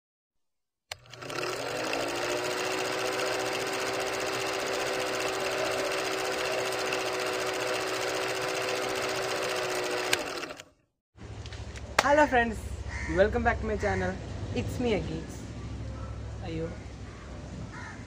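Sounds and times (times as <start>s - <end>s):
film projector whine and clatter: 0.9s - 10.7s.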